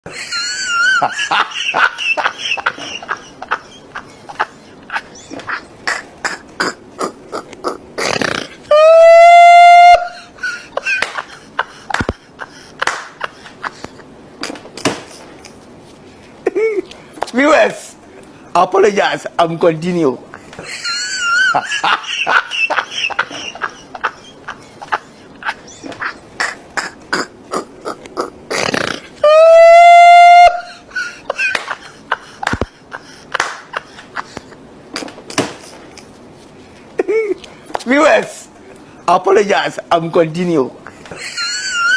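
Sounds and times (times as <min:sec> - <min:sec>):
snatches of voices: 0:25.8 - 0:29.2.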